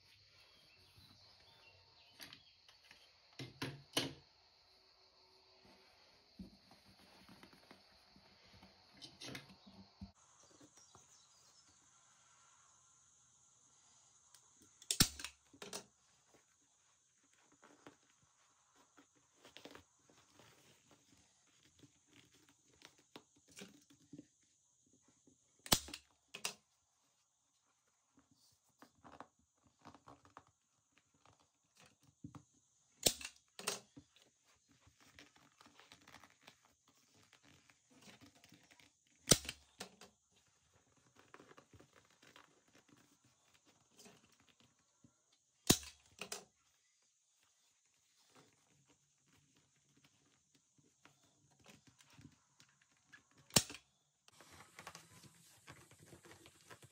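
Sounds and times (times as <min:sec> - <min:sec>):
leather rustling: 0:15.9 - 0:25.0, 0:33.8 - 0:45.5.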